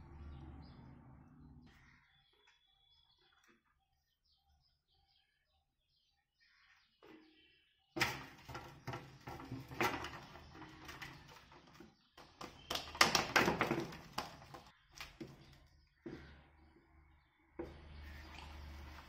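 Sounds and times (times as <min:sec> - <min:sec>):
dough kneaded on metal plate: 0:08.0 - 0:16.6.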